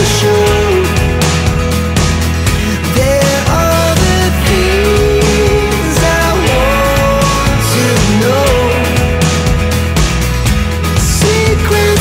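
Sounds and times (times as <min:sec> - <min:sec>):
rock music with drums and bass: 0:00.0 - 0:12.0.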